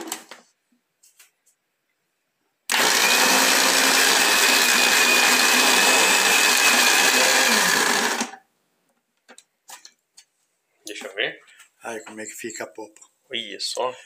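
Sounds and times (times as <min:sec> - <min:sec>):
blender running with high whine: 0:02.7 - 0:08.4.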